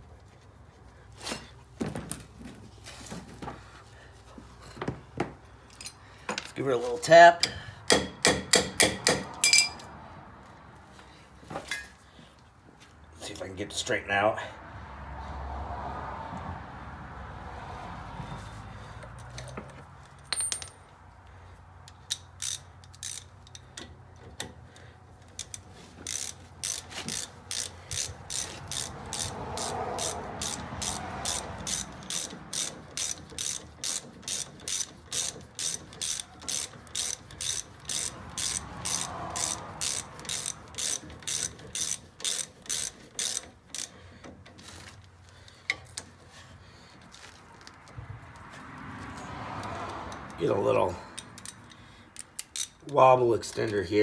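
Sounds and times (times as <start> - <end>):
hand ratchet clicking: 7.4 - 9.8, 21.8 - 46.2, 51.1 - 53.8.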